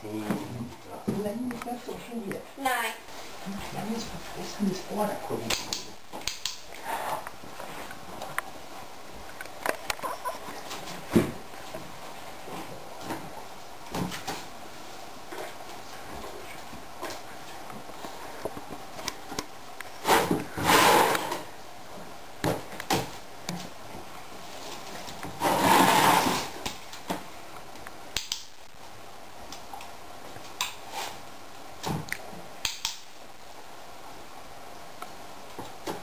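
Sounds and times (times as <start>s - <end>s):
plastic box scraping on wooden floor: 20.0s - 21.5s, 25.2s - 26.6s.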